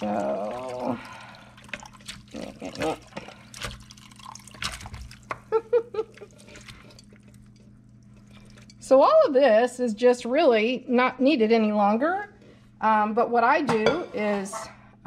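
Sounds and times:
liquid trickling and dripping: 0:00.0 - 0:08.8.

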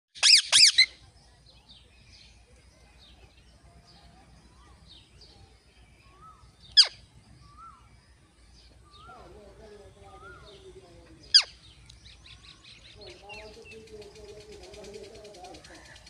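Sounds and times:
parakeets calling: 0:00.2 - 0:01.0, 0:06.0 - 0:07.8, 0:08.8 - 0:16.0.

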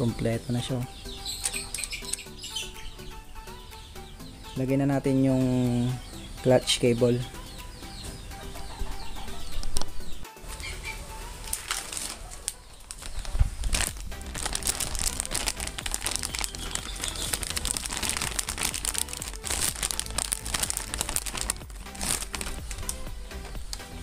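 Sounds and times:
background music: 0:00.0 - 0:24.0
plastic packaging crinkling: 0:11.4 - 0:23.0.

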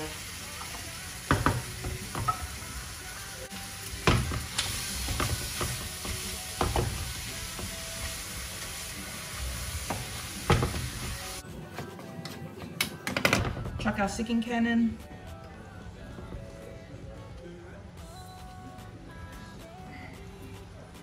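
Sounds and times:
meat sizzling in a frying pan: 0:00.0 - 0:11.4.

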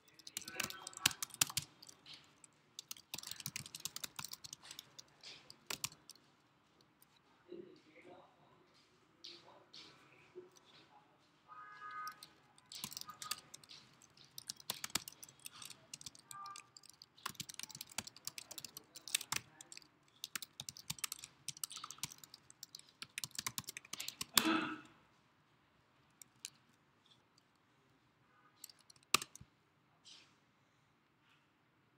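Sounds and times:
keyboard key clicks: 0:00.0 - 0:06.2, 0:12.0 - 0:24.4, 0:28.6 - 0:29.4.

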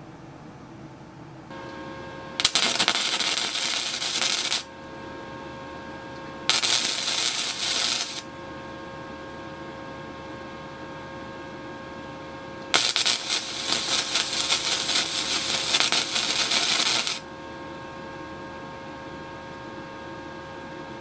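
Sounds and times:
steady hum: 0:00.0 - 0:21.0
arc welding crackling sizzle: 0:01.5 - 0:04.8, 0:06.4 - 0:08.3, 0:12.6 - 0:17.3.

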